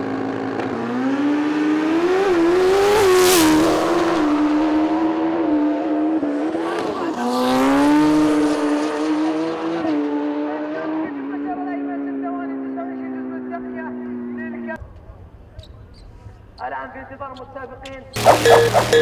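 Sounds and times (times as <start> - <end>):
motorcycle engine revving through gears: 0.0 - 10.4.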